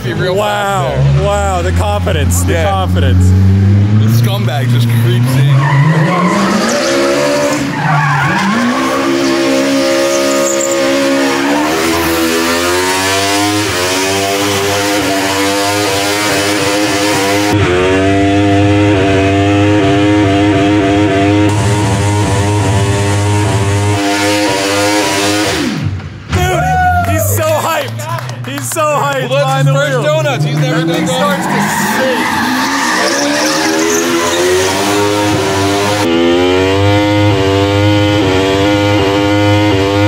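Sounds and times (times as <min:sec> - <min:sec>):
tyres squealing: 0:05.2 - 0:12.6, 0:29.6 - 0:35.5
motorcycle engine at high revs: 0:08.5 - 0:26.0, 0:33.2 - 0:40.0.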